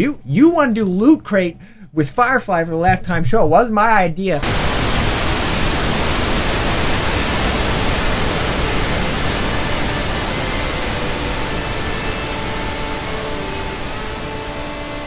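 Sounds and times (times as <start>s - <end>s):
faint steady tones: 4.4s - 15.0s
television static hiss: 4.4s - 15.0s.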